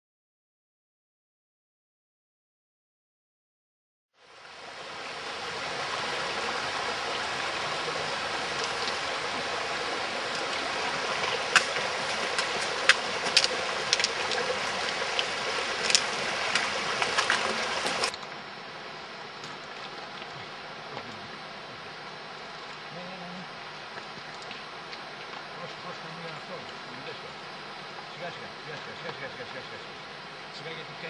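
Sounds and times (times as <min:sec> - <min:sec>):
stream rushing over rocks: 0:04.2 - 0:31.0
footsteps on stones: 0:11.2 - 0:18.1.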